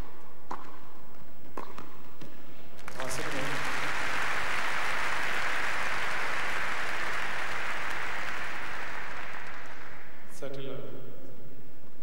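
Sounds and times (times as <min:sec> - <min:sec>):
spectators applauding: 0:02.8 - 0:10.3.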